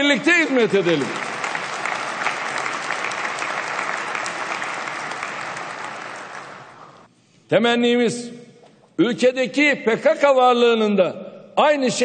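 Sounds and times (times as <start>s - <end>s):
crowd applauding: 0.0s - 7.1s.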